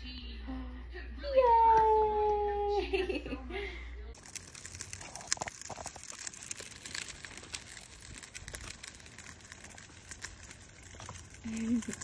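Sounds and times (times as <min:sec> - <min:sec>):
stroller wheels on asphalt: 0:04.2 - 0:12.0.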